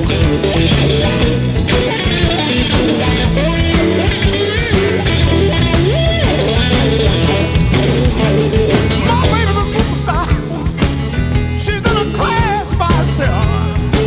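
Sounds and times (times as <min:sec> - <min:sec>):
rock music with guitar: 0:00.0 - 0:14.0.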